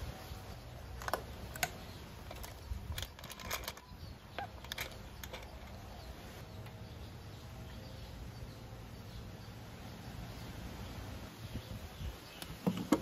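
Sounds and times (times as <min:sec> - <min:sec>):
metal bolts clicking and tapping: 0:00.9 - 0:06.0.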